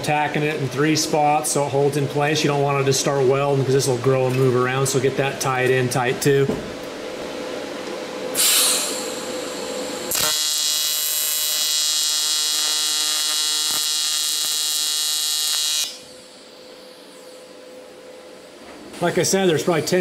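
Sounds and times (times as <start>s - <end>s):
welding arc buzzing: 8.3s - 17.6s
welding arc hiss: 8.3s - 17.6s.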